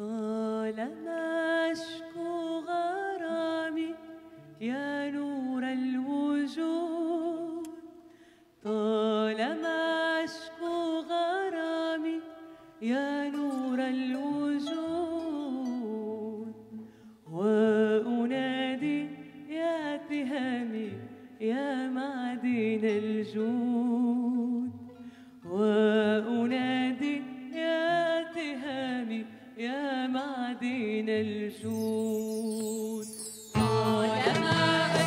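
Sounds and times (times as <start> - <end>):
singer breathing: 8.0 - 8.6, 12.4 - 12.8, 16.7 - 17.2, 24.9 - 25.4
person chanting melodically: 33.6 - 35.0.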